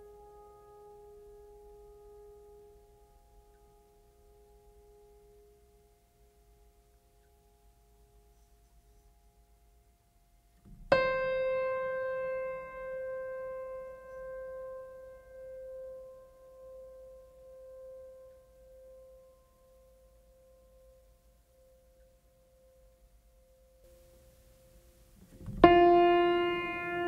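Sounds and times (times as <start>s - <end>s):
piano note ringing: 10.7s - 18.2s, 25.4s - 27.0s.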